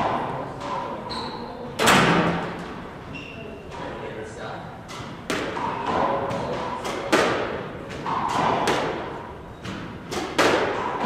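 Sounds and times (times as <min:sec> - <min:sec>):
squash ball knocks: 0:04.8 - 0:11.0.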